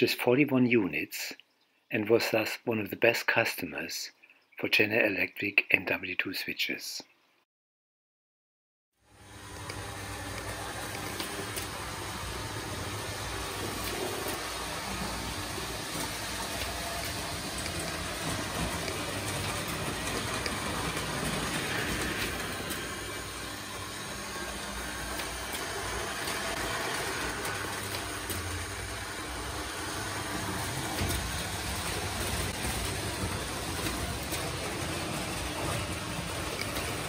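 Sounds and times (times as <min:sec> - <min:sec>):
model train rumbling on rails: 0:09.7 - 0:37.0.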